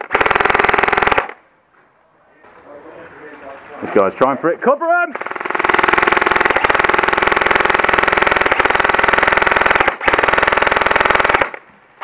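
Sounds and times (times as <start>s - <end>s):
airsoft rifle automatic fire: 0.0s - 1.4s, 5.1s - 11.6s.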